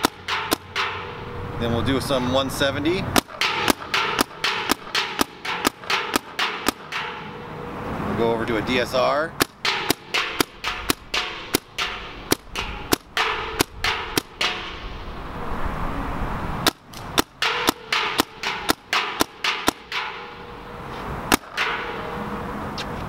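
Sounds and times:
paintball markers firing: 0:00.0 - 0:00.7.

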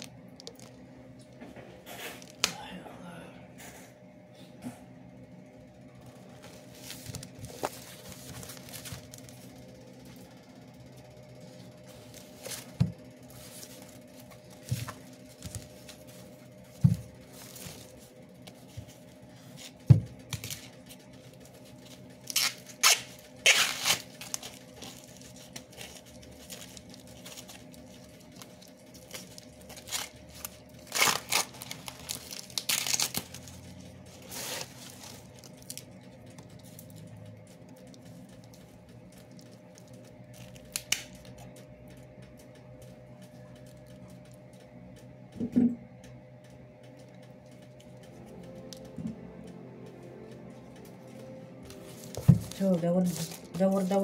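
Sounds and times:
faint steady hum: 0:00.0 - 0:54.0
corn husks tearing: 0:22.2 - 0:35.8.

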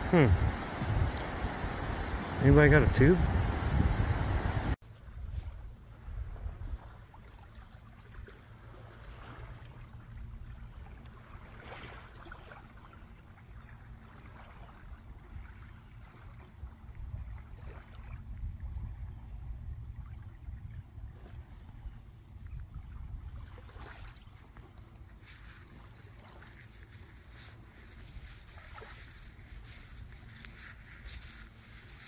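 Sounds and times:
low rumble: 0:00.0 - 0:04.8
high-pitched insect trill: 0:04.8 - 0:21.0.

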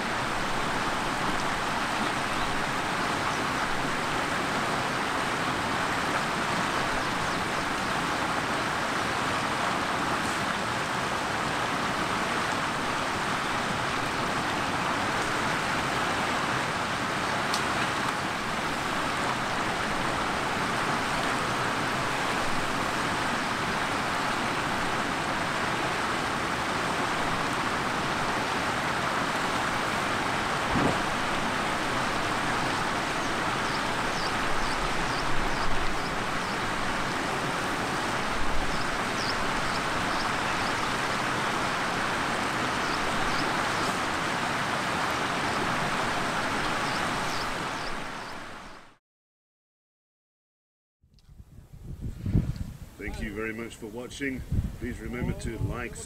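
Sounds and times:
river water rushing: 0:00.0 - 0:49.0
brief thump: 0:30.7 - 0:31.0.

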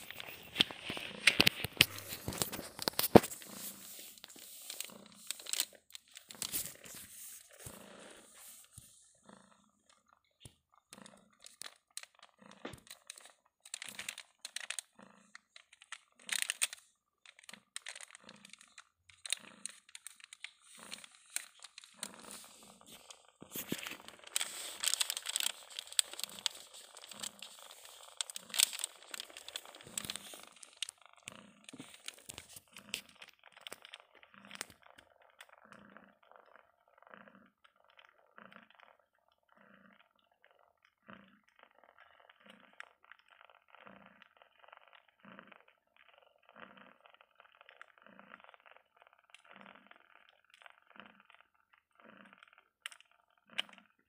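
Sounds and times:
plastic crinkling: 0:00.0 - 0:08.8, 0:09.9 - 0:35.5.

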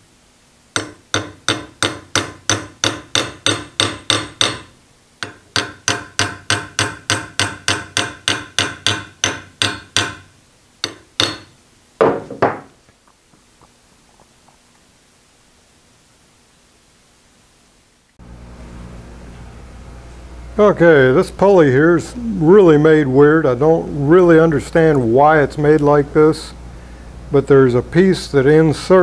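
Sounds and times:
hammer tapping metal punch: 0:00.7 - 0:12.7
loud knock: 0:11.2 - 0:12.8.

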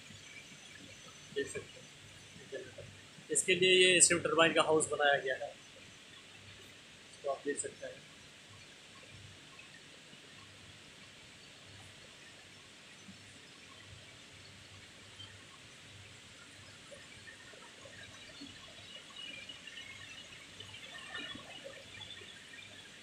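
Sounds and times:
faint turbine hall hiss: 0:00.0 - 0:13.5
faint chirps and clicks: 0:05.4 - 0:23.0.

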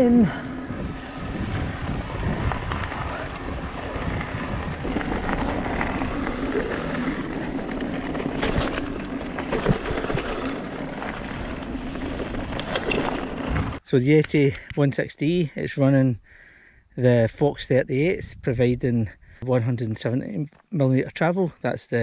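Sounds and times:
wind on microphone: 0:00.0 - 0:08.7
tyres rolling over gravel: 0:00.9 - 0:13.8
bike knocks and rattles: 0:01.9 - 0:13.8.

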